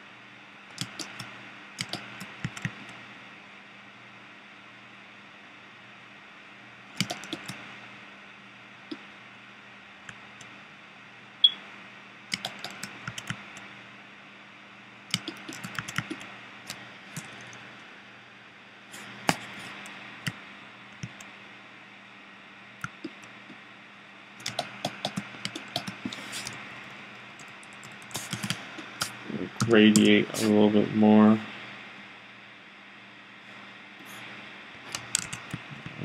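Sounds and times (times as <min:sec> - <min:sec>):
low electrical hum: 0:00.0 - 0:36.0
keyboard and mouse clicking: 0:00.7 - 0:03.0, 0:07.0 - 0:07.6, 0:12.3 - 0:13.6, 0:15.1 - 0:17.6, 0:24.4 - 0:26.6, 0:27.4 - 0:30.1, 0:34.9 - 0:35.7.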